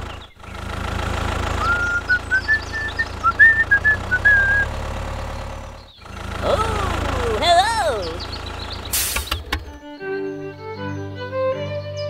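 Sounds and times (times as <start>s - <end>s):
low engine-like hum: 0.0s - 12.0s
whistled notes climbing in pitch: 1.6s - 4.7s.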